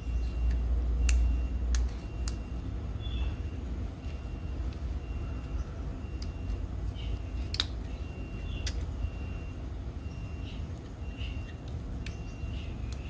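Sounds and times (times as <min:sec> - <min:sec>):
plastic parts clicking together: 0:07.4 - 0:07.9.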